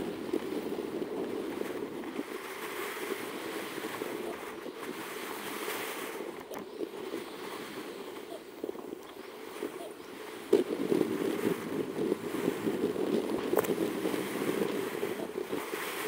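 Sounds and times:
rushing wind: 0:00.0 - 0:16.0
wheels crackling on tarmac: 0:00.0 - 0:16.0
wind buffeting microphone: 0:00.0 - 0:16.0.

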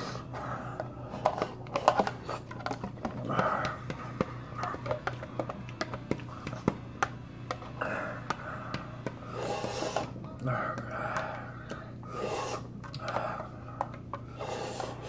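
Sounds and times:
fork tapping plastic bowl: 0:01.2 - 0:07.6.

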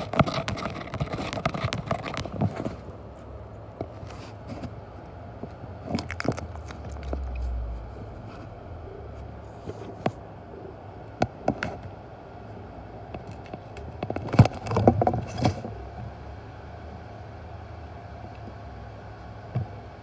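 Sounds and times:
cat scratching cardboard box: 0:00.0 - 0:02.8.

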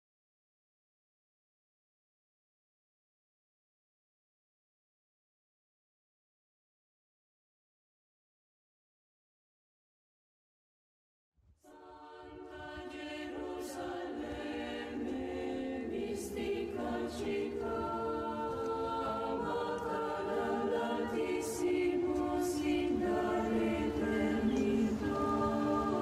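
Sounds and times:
choir singing sustained notes: 0:11.6 - 0:26.0.

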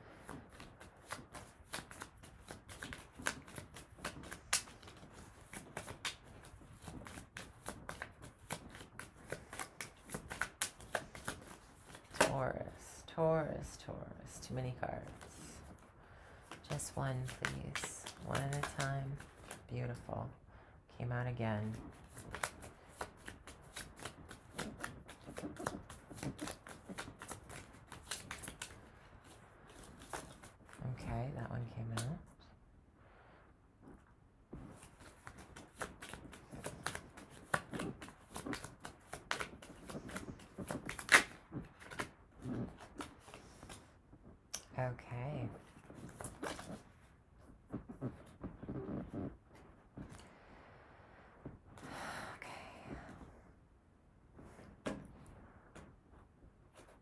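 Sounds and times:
cards being shuffled: 0:00.2 - 0:12.4, 0:15.0 - 0:15.8, 0:16.4 - 0:20.1, 0:21.5 - 0:30.8, 0:34.6 - 0:43.9, 0:45.5 - 0:50.3.

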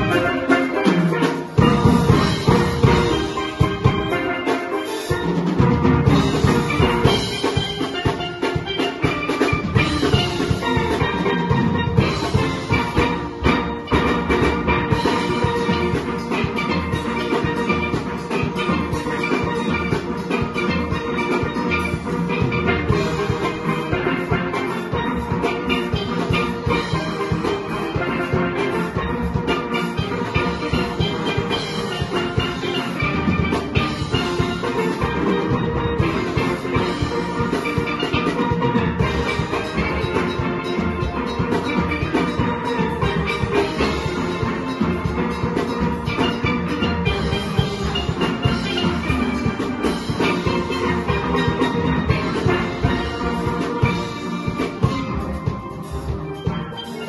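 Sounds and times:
drum and percussion beat: 0:00.0 - 0:57.0
steel pans playing fast notes: 0:00.0 - 0:57.0.

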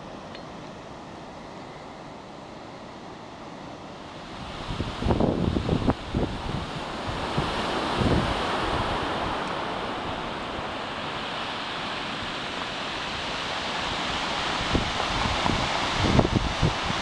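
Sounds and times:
wind gust on microphone: 0:04.1 - 0:17.0
surf washing onto rocks: 0:04.2 - 0:17.0.

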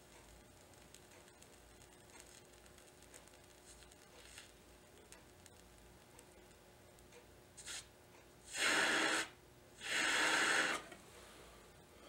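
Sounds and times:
breath blown through blowpipe: 0:08.5 - 0:11.0.

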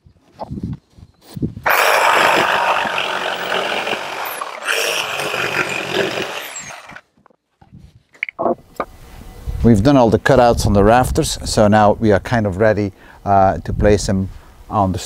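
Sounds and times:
jigsaw cutting wood: 0:01.7 - 0:07.1.

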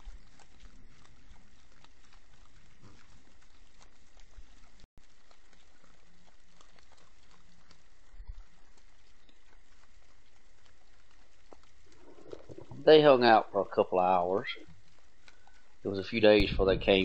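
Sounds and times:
faint clicks: 0:00.0 - 0:12.8, 0:14.5 - 0:16.4
steady hiss: 0:02.2 - 0:17.0
hog grunting: 0:11.8 - 0:14.8.

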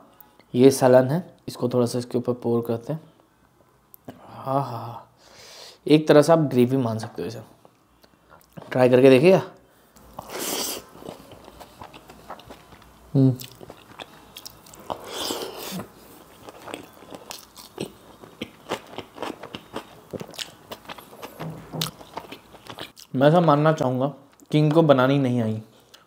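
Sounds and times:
wet chewing: 0:10.0 - 0:23.1.

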